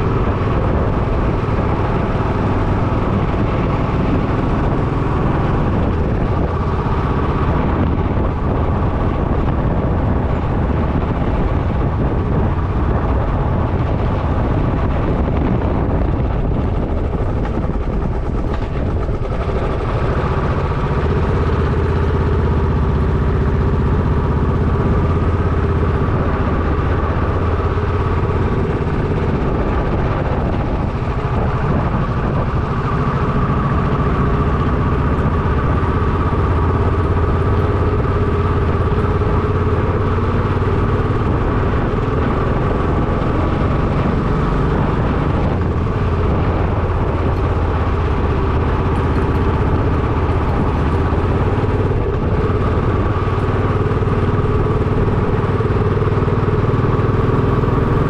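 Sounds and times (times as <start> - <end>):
motorcycle engine running: 0.0 - 58.0
wind on microphone: 0.0 - 58.0.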